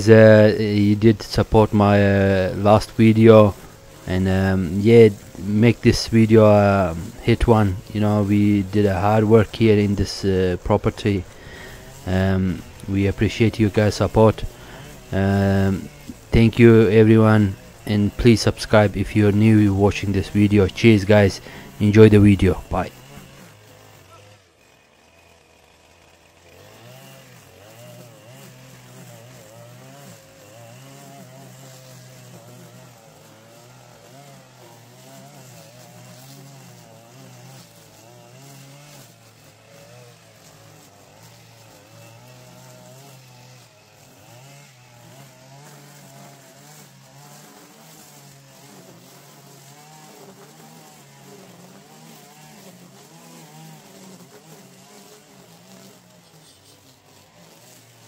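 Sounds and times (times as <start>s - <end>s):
string trimmer cutting grass: 0.0s - 58.0s.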